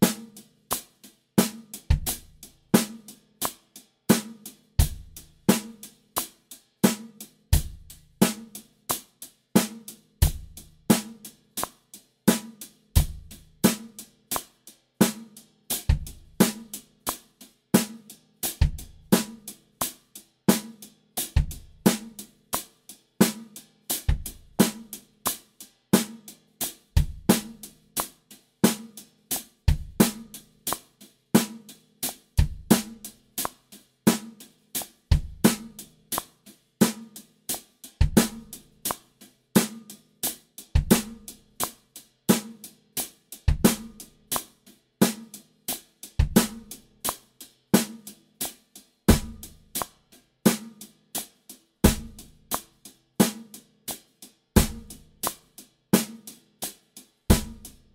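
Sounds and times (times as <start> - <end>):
snare drum backbeats: 0.0 - 9.0, 27.0 - 42.7, 43.5 - 45.4, 46.2 - 47.2, 47.8 - 50.8, 51.8 - 52.6, 54.6 - 56.4, 57.3 - 57.9.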